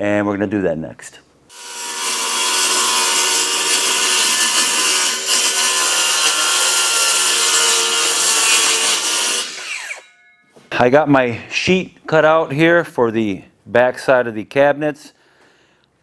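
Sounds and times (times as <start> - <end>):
circular saw cutting plywood: 1.5 - 10.3.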